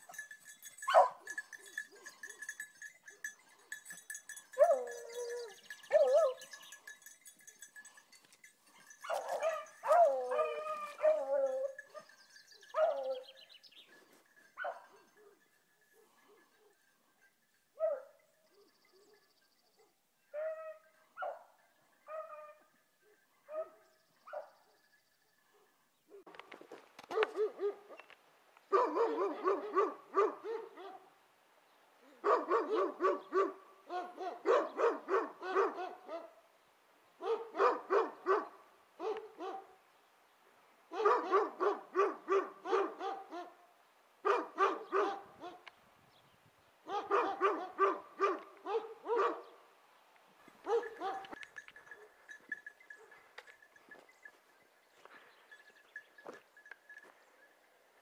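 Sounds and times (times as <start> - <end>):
beagles baying: 0.0 - 16.8, 50.5 - 57.8.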